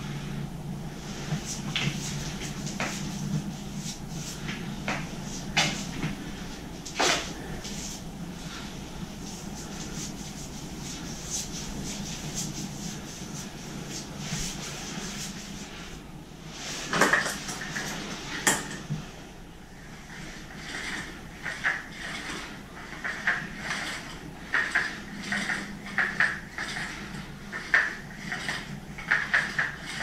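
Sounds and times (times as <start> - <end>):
low hum: 0.0 - 16.8
paintbrush strokes on wall: 0.9 - 17.0.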